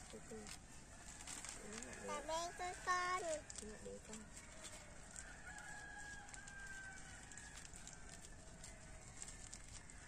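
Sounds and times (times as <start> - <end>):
wood fire crackling: 0.0 - 10.0.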